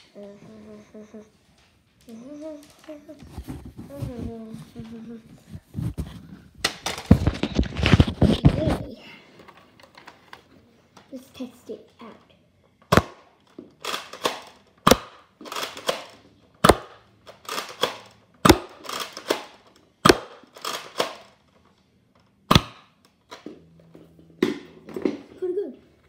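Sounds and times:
plastic blaster priming clacks: 0:12.8 - 0:23.5
dart blaster firing pops: 0:12.9 - 0:13.3, 0:13.9 - 0:17.0, 0:17.8 - 0:21.2, 0:22.5 - 0:22.9.

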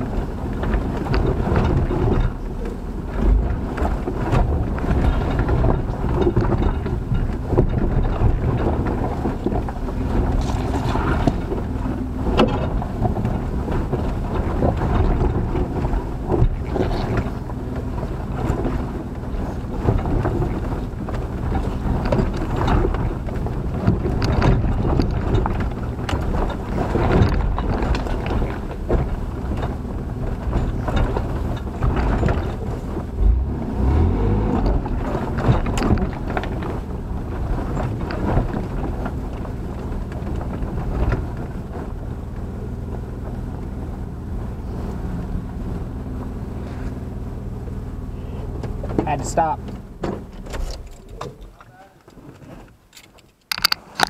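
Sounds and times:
truck engine running low: 0:00.0 - 0:51.6
rumble of tyres and body: 0:00.0 - 0:54.0
sharp knocks over rocks: 0:00.6 - 0:17.4.

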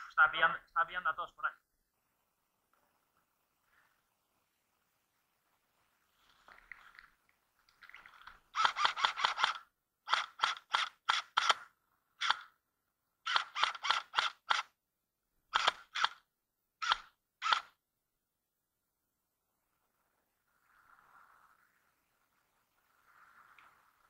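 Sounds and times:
airsoft rifle shots: 0:08.6 - 0:12.5, 0:13.3 - 0:14.7, 0:15.5 - 0:16.2.

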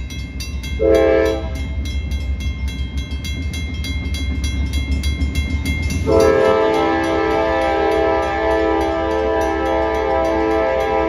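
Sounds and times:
crossing bell ringing: 0:00.0 - 0:11.0
diesel locomotive rumble: 0:00.0 - 0:11.0
train horn blast: 0:00.8 - 0:01.6, 0:06.1 - 0:11.0.

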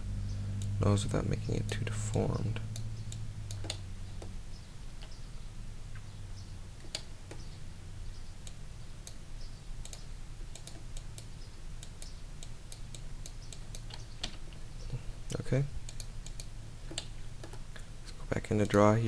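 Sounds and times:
steady low hum: 0:00.0 - 0:19.0
keyboard and mouse clicks: 0:01.7 - 0:04.3, 0:06.8 - 0:07.5, 0:09.8 - 0:14.5, 0:15.9 - 0:17.6.

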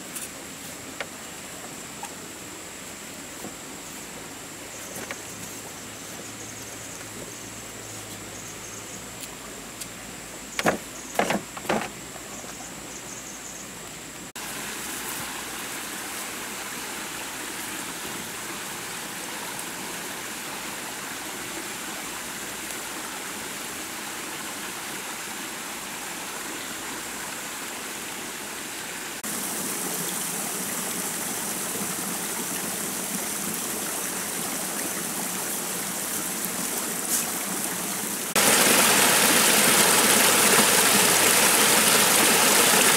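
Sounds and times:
stream rushing: 0:14.3 - 0:42.9.

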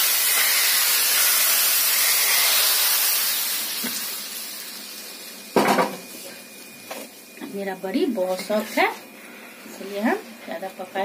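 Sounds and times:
hot oil sizzling hiss: 0:00.0 - 0:11.0.

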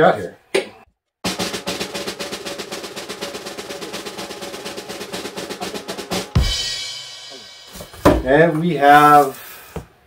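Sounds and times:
snare drum roll: 0:01.2 - 0:06.8
loud snare drum hit: 0:01.2 - 0:08.4.

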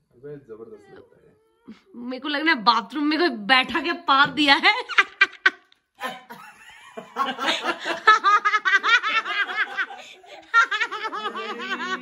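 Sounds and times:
people laughing: 0:04.7 - 0:12.0.

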